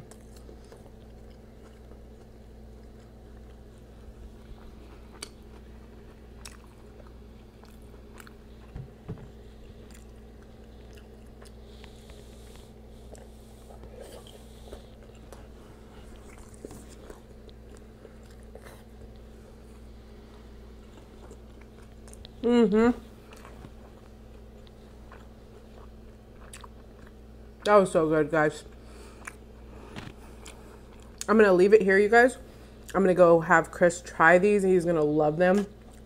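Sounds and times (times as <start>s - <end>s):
chewing crunchy taco: 0.0s - 27.8s, 28.6s - 31.4s, 35.5s - 36.0s
steady low hum: 0.0s - 36.0s.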